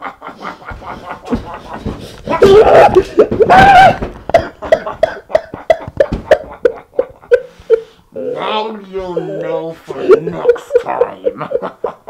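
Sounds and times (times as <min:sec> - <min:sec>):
person crying out: 0:02.3 - 0:04.1.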